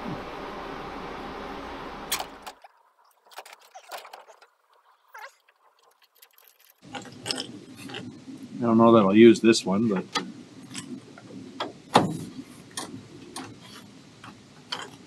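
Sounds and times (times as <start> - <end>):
steady background hum: 0.0 - 15.0
metal parts clicking and clinking: 2.1 - 8.1, 14.6 - 15.0.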